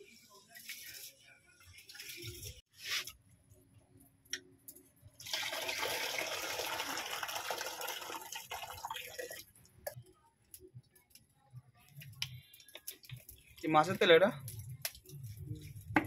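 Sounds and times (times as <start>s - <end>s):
water pouring into bucket: 5.2s - 9.5s.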